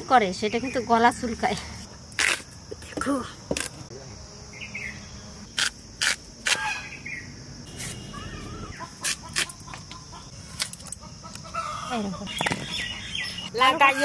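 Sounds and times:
blade cutting taro with cracks: 2.2s - 2.5s, 5.5s - 6.7s, 9.0s - 9.6s
hen clucking: 8.0s - 13.0s.

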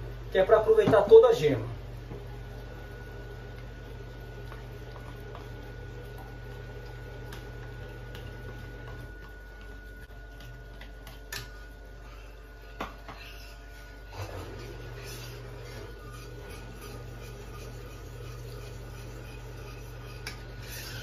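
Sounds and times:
steady low hum: 0.0s - 21.0s
utensil scraping plastic bowl: 13.1s - 21.0s.

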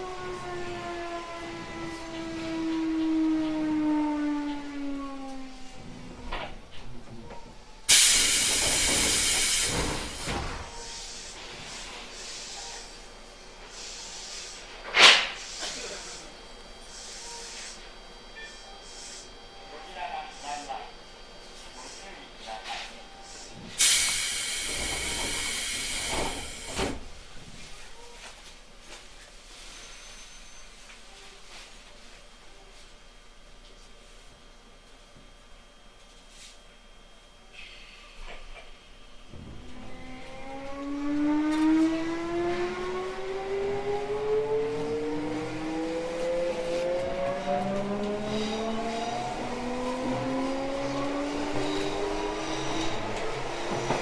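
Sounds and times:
train car background noise: 0.0s - 54.0s
pneumatic thump: 7.9s - 10.7s, 23.6s - 27.1s
compressed air hissing: 7.9s - 12.8s, 13.7s - 16.3s, 23.8s - 26.9s.

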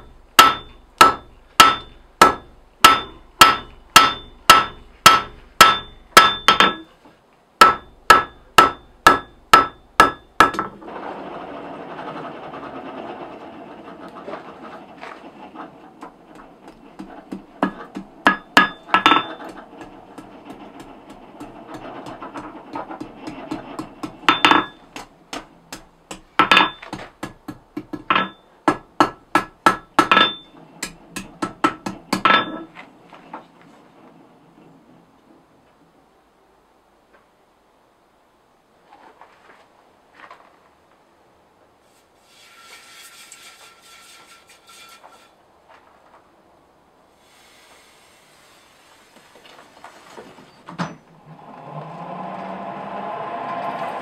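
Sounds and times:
hammer blows ringing on anvil: 0.4s - 6.8s, 7.6s - 10.7s, 24.0s - 25.0s.

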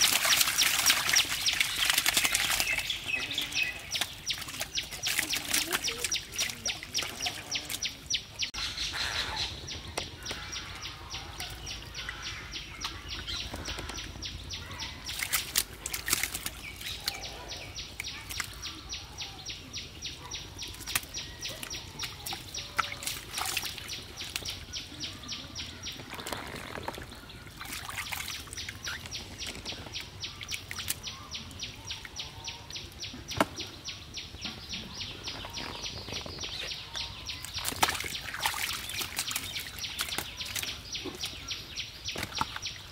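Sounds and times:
catfish splashing in water: 0.0s - 8.0s, 12.8s - 18.8s, 20.6s - 24.9s, 25.9s - 31.0s, 37.4s - 41.4s.

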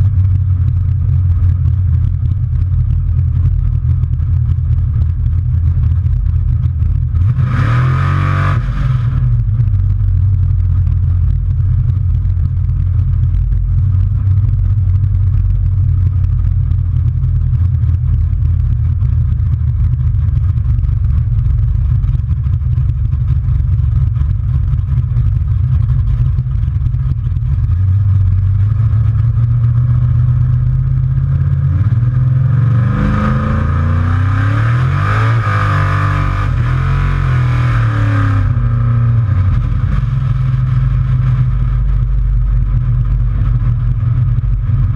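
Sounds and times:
truck engine running: 0.0s - 44.9s
engine revving: 5.2s - 10.3s, 27.8s - 44.9s.

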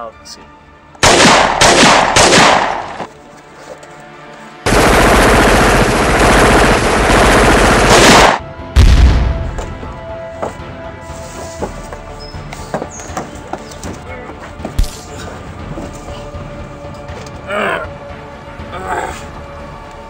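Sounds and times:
automatic gunfire: 1.0s - 3.1s, 4.7s - 8.4s
heavy deep boom: 8.8s - 9.6s.

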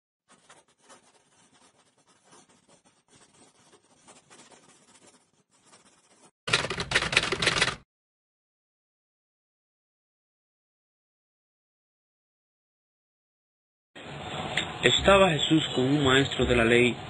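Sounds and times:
faint irregular scratching: 0.3s - 6.4s.

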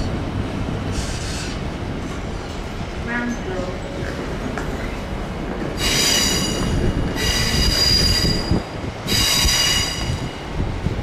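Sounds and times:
train wagons rumbling: 0.0s - 11.0s
train wheels squealing: 5.8s - 10.5s.

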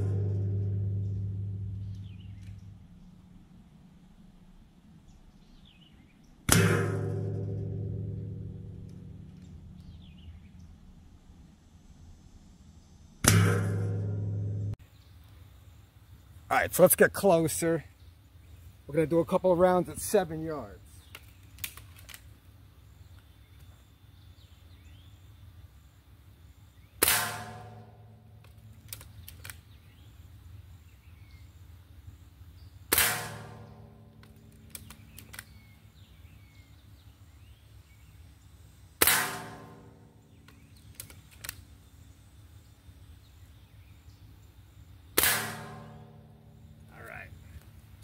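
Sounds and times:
pellet striking steel target: 0.0s - 2.4s, 6.4s - 9.8s, 13.2s - 14.8s, 27.0s - 28.2s, 32.9s - 35.1s, 39.0s - 40.7s, 45.2s - 46.8s
air rifle cocking clicks: 21.0s - 22.3s, 28.4s - 29.7s, 34.2s - 35.7s, 40.4s - 41.7s.

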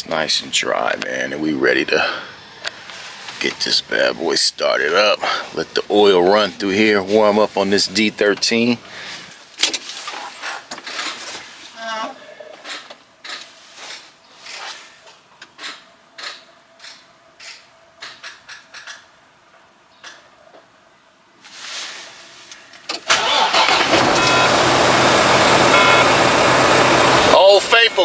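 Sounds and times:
diesel truck engine starting: 22.9s - 28.0s.

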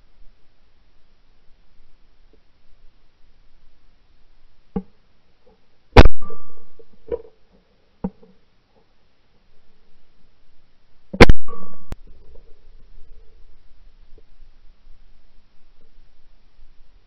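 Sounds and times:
shotgun shot: 6.0s - 6.8s, 11.2s - 12.0s
faint sharp cracks: 11.2s - 12.5s.

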